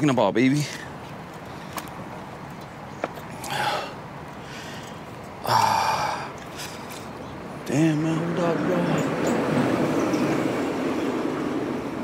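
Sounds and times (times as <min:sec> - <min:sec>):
man gasping exhale: 0:03.4 - 0:06.3.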